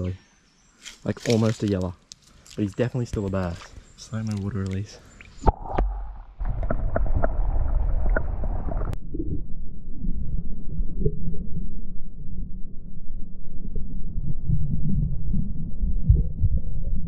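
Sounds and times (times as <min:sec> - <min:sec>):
water splashing: 0:02.5 - 0:09.0
underwater water gurgle: 0:05.2 - 0:09.4.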